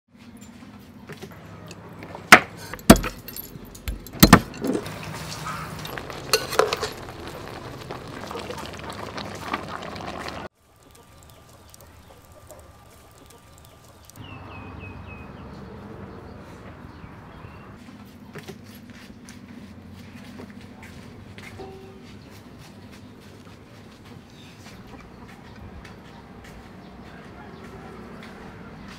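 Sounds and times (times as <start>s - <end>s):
metal cookware clinking: 1.7s - 8.7s.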